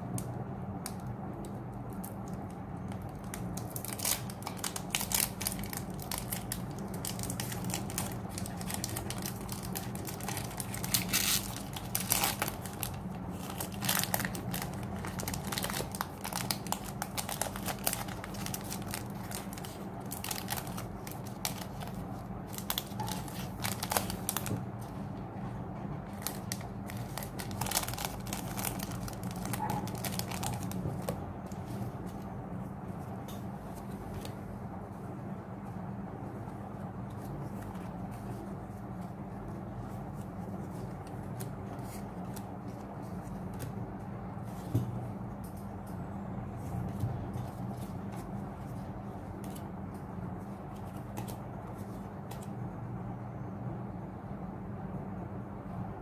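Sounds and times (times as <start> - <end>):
steady low hum: 0.0 - 56.0
foil wrapper crinkling: 3.0 - 24.6, 26.2 - 31.7.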